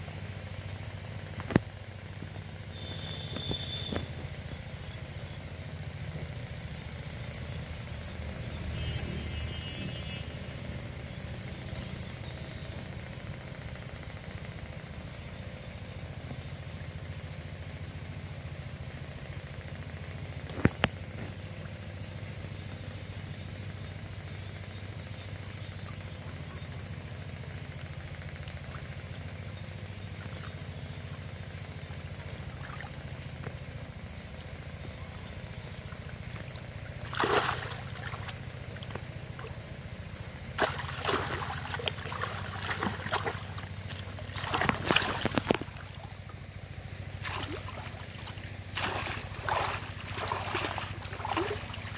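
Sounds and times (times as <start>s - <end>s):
motor humming low: 0.0s - 51.9s
water splashing and dripping: 35.7s - 39.6s, 40.5s - 46.4s, 47.2s - 51.9s.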